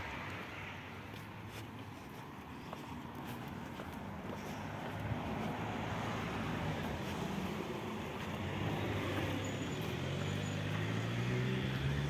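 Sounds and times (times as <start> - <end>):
hum of passing cars: 0.0 - 12.0
vehicle engine rising in pitch: 8.6 - 12.0.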